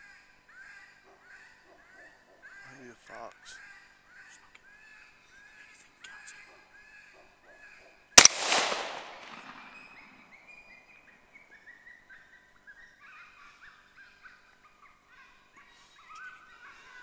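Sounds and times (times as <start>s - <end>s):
rifle shot with echo: 8.2s - 10.3s.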